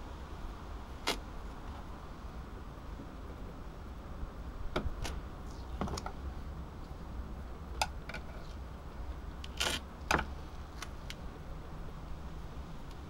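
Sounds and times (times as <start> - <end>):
duct tape ripping: 1.0 - 1.2, 9.4 - 10.9.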